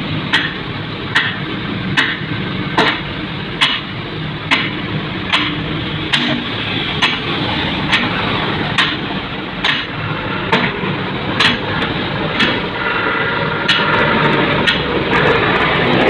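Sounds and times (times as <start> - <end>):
street traffic noise: 0.0 - 16.0
sharp knocks: 0.3 - 1.4, 2.0 - 3.0, 4.5 - 7.2, 8.8 - 9.9, 11.4 - 11.8.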